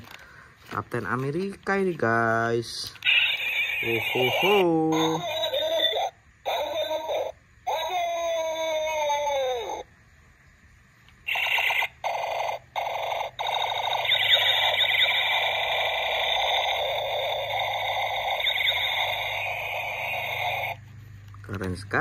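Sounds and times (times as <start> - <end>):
toy electronic blasts: 3.0 - 9.5, 11.2 - 20.8
warbling electronic tone: 11.3 - 20.8.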